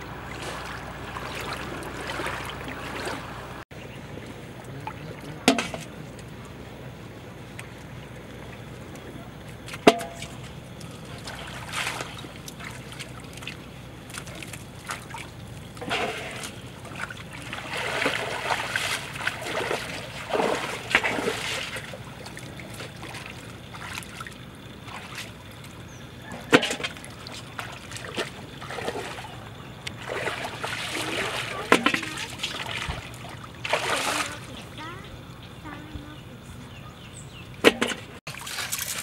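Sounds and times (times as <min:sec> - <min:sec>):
water splashing and sloshing: 0:00.0 - 0:36.4, 0:37.4 - 0:39.0.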